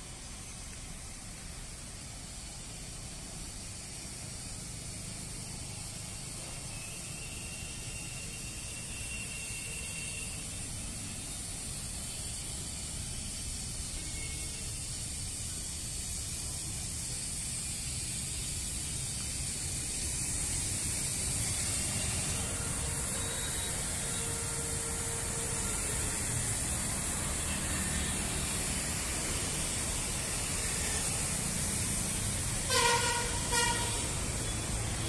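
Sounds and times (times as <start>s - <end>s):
low street rumble and hiss: 0.0s - 35.0s
vehicle horn toot: 32.7s - 34.2s.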